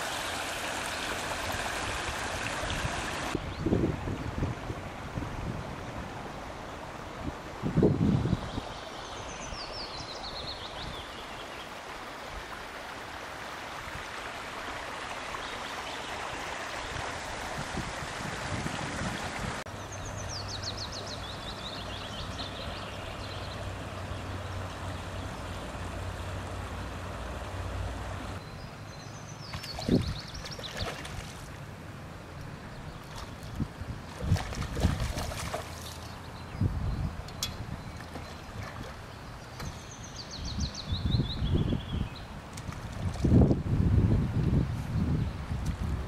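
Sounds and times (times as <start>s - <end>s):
water running into a pond: 0.0s - 7.8s, 11.1s - 28.4s, 29.1s - 36.4s
fish splash: 34.2s - 36.1s.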